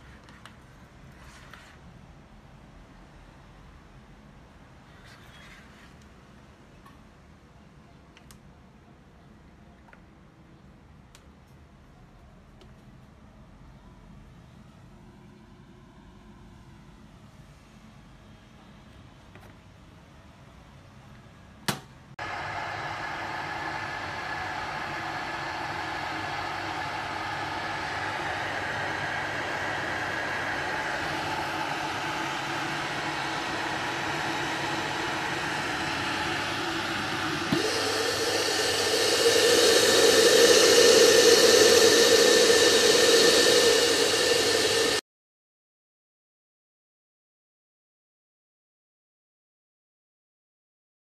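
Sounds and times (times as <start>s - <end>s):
electric kettle heating water: 21.7s - 45.0s.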